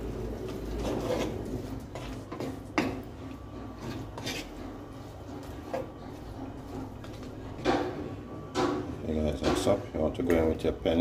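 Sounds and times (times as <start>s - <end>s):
wooden spoon stirring in frying pan: 0.0s - 7.7s.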